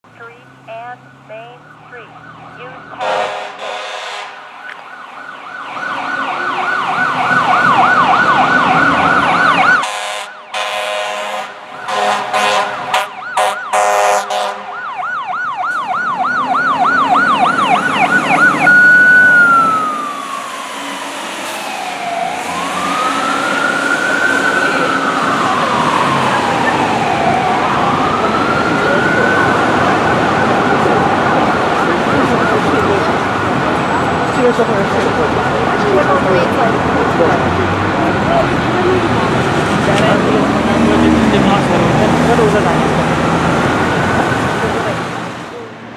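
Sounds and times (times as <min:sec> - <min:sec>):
fire truck siren: 0:00.0 - 0:45.9
fire truck horn blasts: 0:02.8 - 0:04.5, 0:09.8 - 0:14.9.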